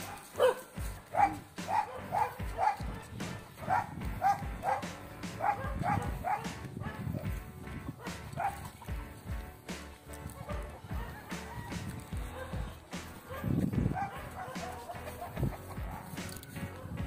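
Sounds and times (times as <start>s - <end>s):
dog barking: 0.0s - 3.0s, 3.6s - 7.3s, 7.9s - 8.8s, 10.4s - 11.2s, 12.2s - 17.0s.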